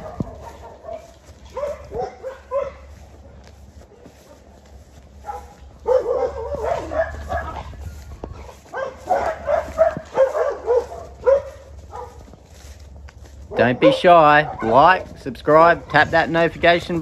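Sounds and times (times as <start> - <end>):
dog barking: 0.0 - 3.0, 5.2 - 7.8, 8.5 - 12.3, 13.5 - 15.1.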